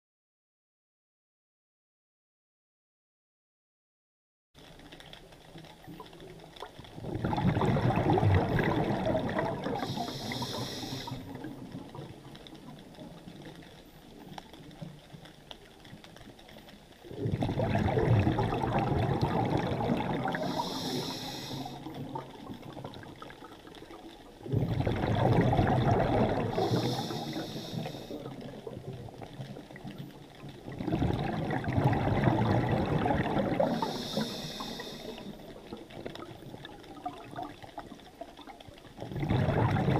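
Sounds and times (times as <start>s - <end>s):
exhaled bubbles underwater: 4.8s - 39.9s
regulator hiss: 9.8s - 11.2s, 20.4s - 22.0s, 26.6s - 28.3s, 33.8s - 35.4s.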